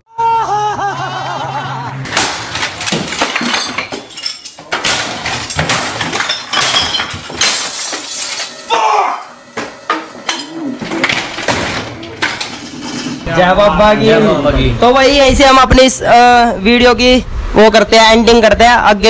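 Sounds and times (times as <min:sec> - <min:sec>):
stick smashing glass bottles: 0:02.1 - 0:08.7, 0:09.6 - 0:13.2
glass shattering and clinking: 0:02.1 - 0:08.8, 0:09.6 - 0:13.3.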